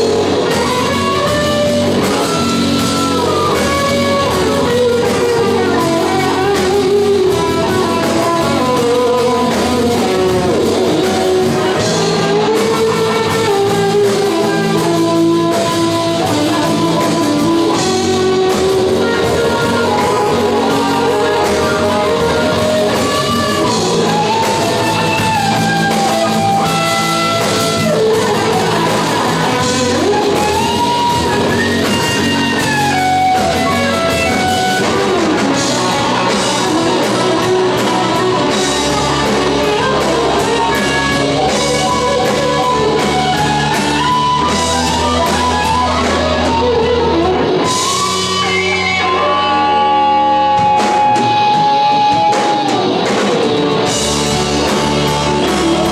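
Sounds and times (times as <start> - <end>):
live hard rock band: 0.0 - 55.9.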